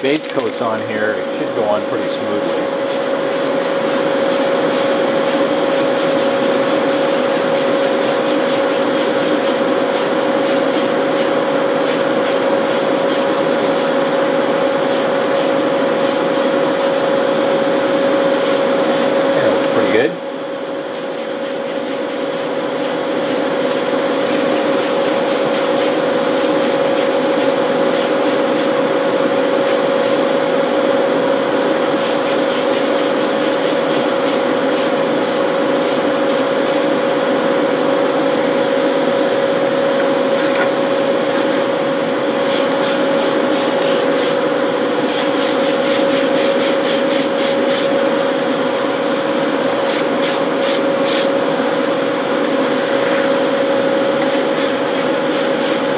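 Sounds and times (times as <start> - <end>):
exhaust fan whirring: 0.0 - 55.9
spray paint can hissing: 2.4 - 14.0, 14.9 - 17.0, 18.4 - 19.1, 20.9 - 28.8, 29.6 - 30.2, 32.0 - 36.9, 42.4 - 44.4, 45.1 - 47.9, 49.8 - 51.3, 54.2 - 55.8.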